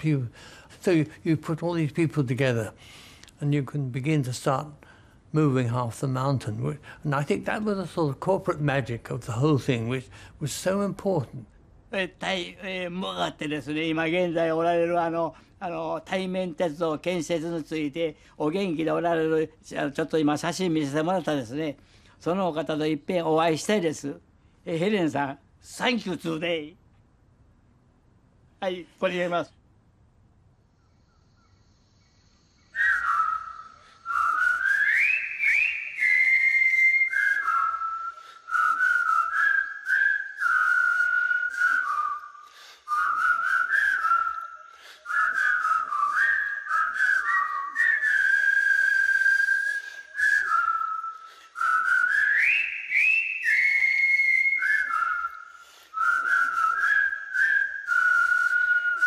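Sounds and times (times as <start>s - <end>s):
person whistling slow melody: 32.7s - 59.0s.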